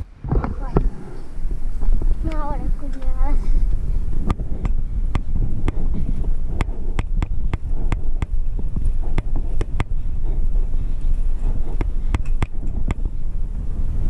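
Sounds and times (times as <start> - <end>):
wind buffeting microphone: 0.0 - 14.0
bicycle clicks and knocks: 11.0 - 13.1.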